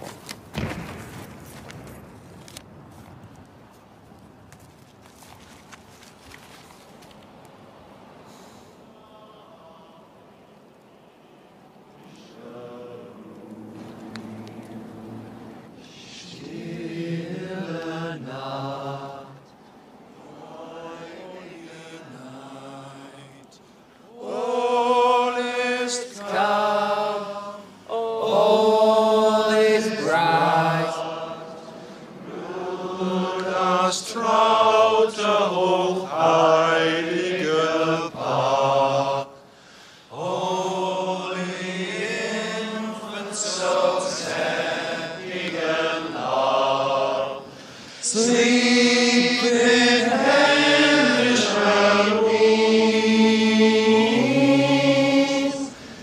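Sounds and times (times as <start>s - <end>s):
men singing a carol: 8.9s - 10.4s, 12.0s - 15.2s, 15.8s - 19.6s, 20.2s - 56.0s.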